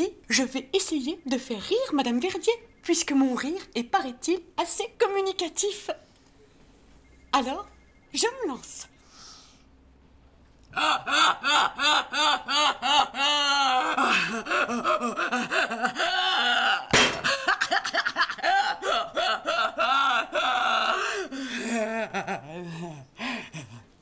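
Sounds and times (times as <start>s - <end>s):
woman laughing loudly: 10.8s - 23.9s.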